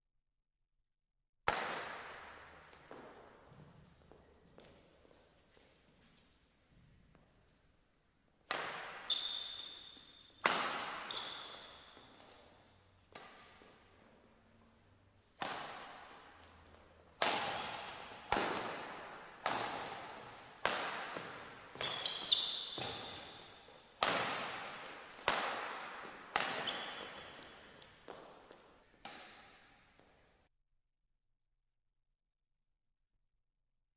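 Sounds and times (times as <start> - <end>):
badminton racket hits: 1.5 - 3.5, 8.4 - 29.8
shoe squeaks on court: 1.5 - 3.8, 8.8 - 12.9, 19.2 - 28.3.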